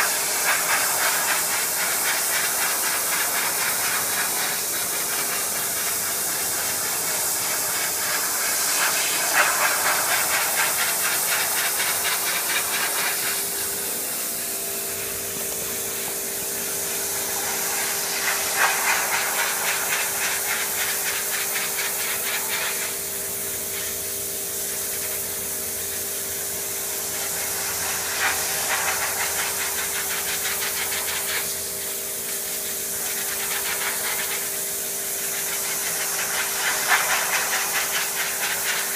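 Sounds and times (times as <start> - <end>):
pressure washer spraying wood: 0.0 - 38.9
pressure washer motor hum: 3.0 - 20.8.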